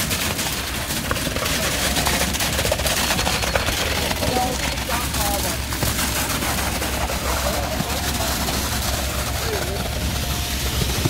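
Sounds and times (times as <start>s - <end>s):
concrete pump engine drone: 0.0s - 11.0s
rapid irregular knocking clatter: 0.0s - 11.0s.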